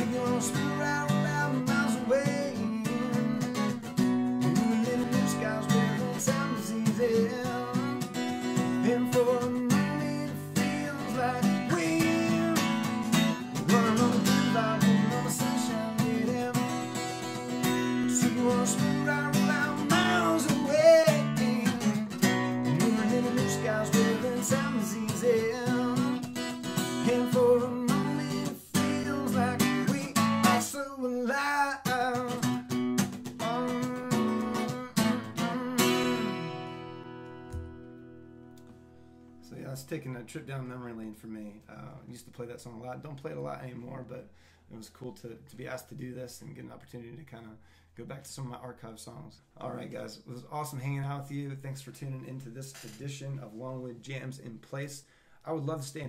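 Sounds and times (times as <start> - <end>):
man singing: 0.0 - 3.7, 4.4 - 32.6, 33.3 - 36.7
acoustic guitar strumming: 0.0 - 39.4.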